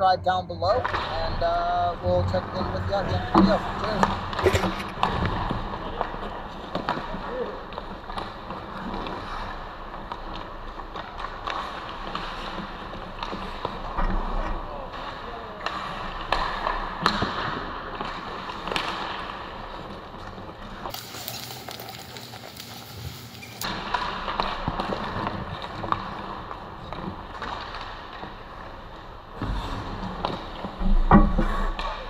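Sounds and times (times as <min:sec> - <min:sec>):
hockey sticks and puck clicking: 0:03.3 - 0:32.0
skate blades scraping ice: 0:03.4 - 0:30.8
steady hiss: 0:20.9 - 0:23.6.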